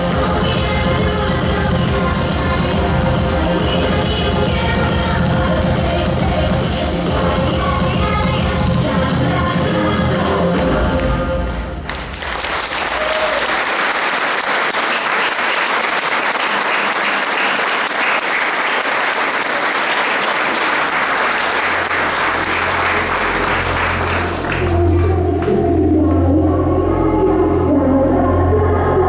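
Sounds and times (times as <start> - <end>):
crowd applauding: 11.8 - 25.0
low music: 20.7 - 29.0.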